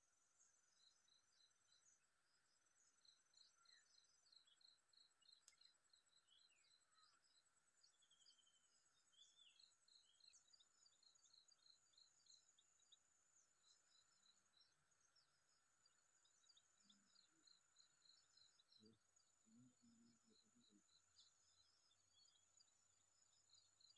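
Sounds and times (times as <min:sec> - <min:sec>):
insects chirping: 0:00.0 - 0:23.9
faint click: 0:05.3 - 0:05.7.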